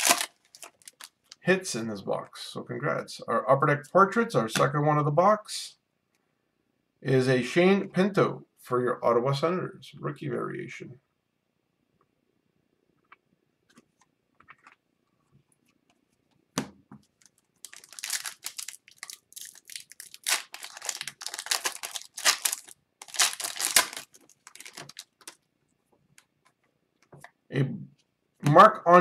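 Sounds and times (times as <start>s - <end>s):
foil wrapper tearing and crinkling: 0.0s - 1.3s, 17.2s - 25.4s.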